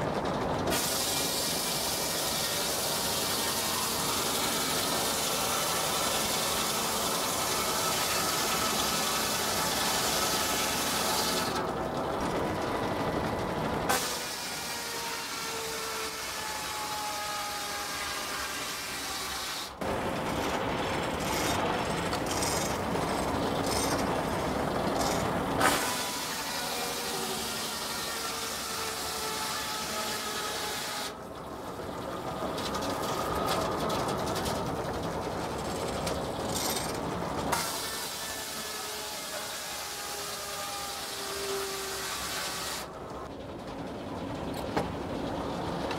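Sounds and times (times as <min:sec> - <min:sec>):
circular saw cutting log: 0:00.7 - 0:11.7, 0:13.9 - 0:31.2, 0:36.0 - 0:43.0.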